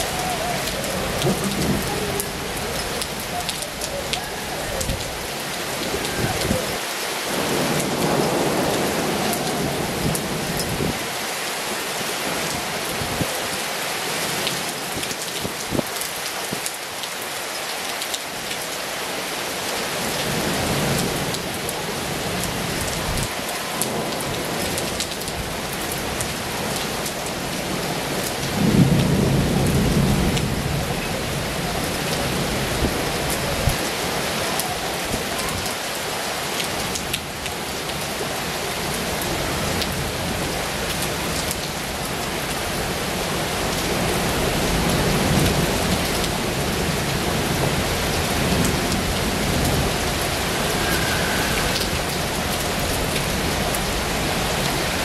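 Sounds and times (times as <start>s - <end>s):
heavy rain on pavement: 0.0s - 55.0s.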